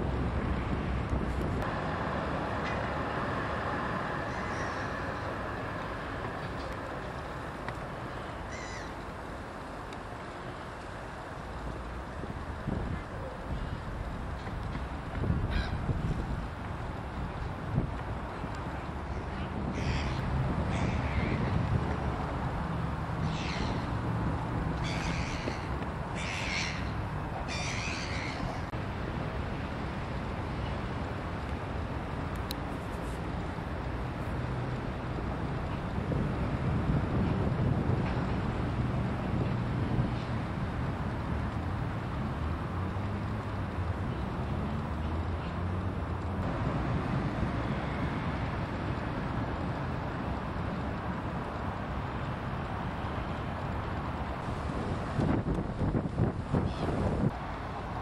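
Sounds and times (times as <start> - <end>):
distant city traffic: 0.0 - 58.0
crow cawing: 8.5 - 9.0, 19.8 - 21.4, 24.8 - 26.9.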